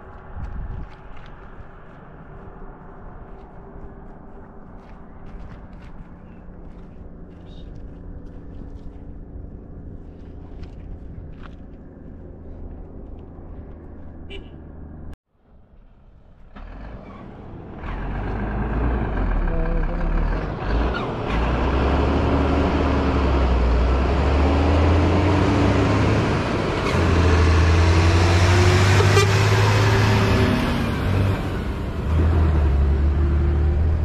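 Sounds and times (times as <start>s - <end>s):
vehicle engine: 0.0s - 34.0s
dump truck diesel engine passing: 15.8s - 34.0s.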